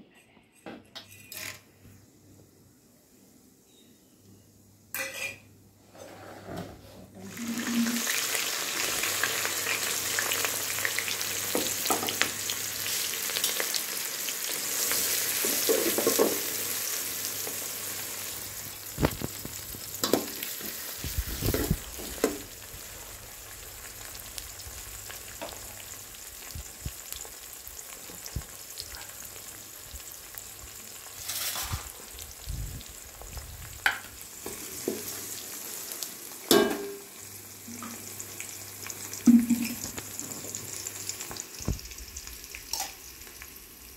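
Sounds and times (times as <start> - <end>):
onions sizzling in hot oil: 7.3 - 43.9.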